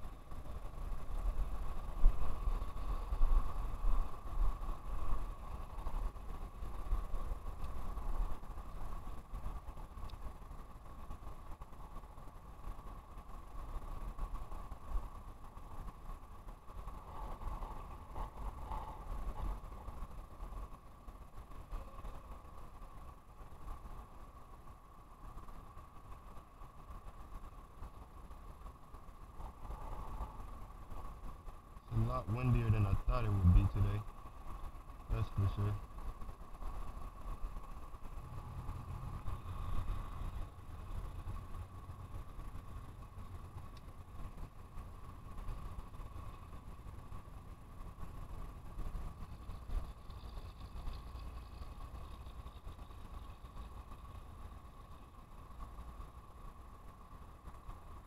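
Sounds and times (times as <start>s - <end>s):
road traffic hum: 0.0s - 58.0s
steady background noise: 0.0s - 58.0s
wind buffeting microphone: 0.0s - 58.0s.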